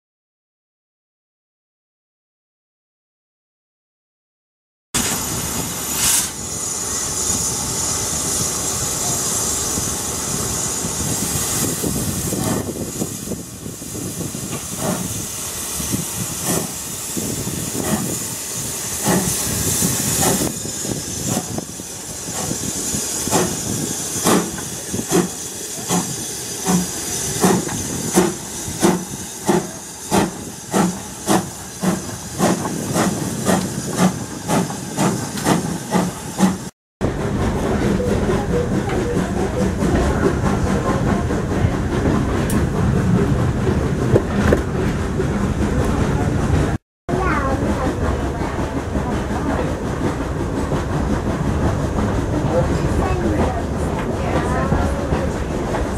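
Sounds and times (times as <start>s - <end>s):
steam hissing: 5.0s - 36.7s
steam locomotive exhaust chuffing: 5.0s - 55.9s.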